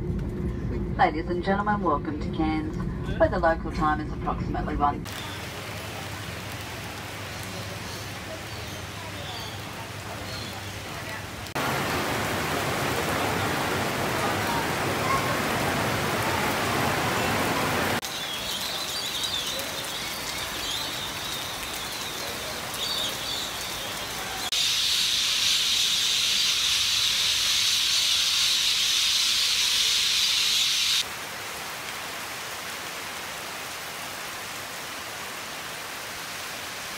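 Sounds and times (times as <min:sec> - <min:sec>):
heavy rain: 0:05.0 - 0:36.9
loud high-pitched hiss: 0:24.5 - 0:31.0.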